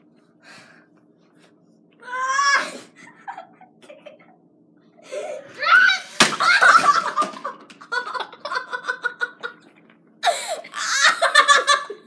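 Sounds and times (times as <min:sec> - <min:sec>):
kids laughing: 0:03.0 - 0:04.4, 0:06.1 - 0:09.7, 0:10.8 - 0:12.0.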